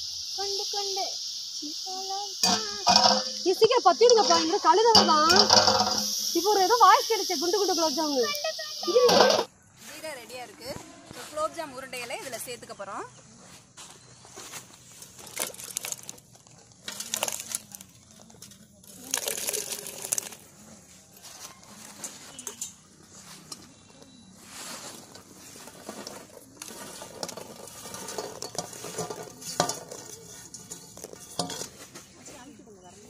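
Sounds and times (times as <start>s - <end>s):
balls dropping into syrup: 2.4s - 6.6s, 15.0s - 20.6s, 25.7s - 31.8s
metal containers clinking: 2.4s - 6.9s, 7.6s - 9.5s, 14.9s - 20.6s, 21.4s - 24.2s, 24.8s - 32.2s.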